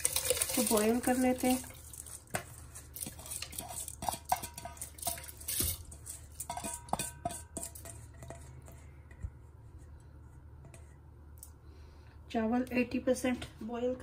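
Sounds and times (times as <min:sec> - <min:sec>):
steel bowl clinking against pot: 0:03.0 - 0:09.2.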